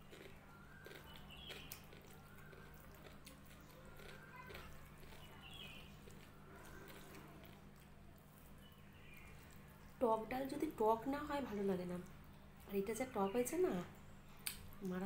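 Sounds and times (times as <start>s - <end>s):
chewing: 0.0s - 10.0s
food squished with fingers: 0.0s - 10.0s.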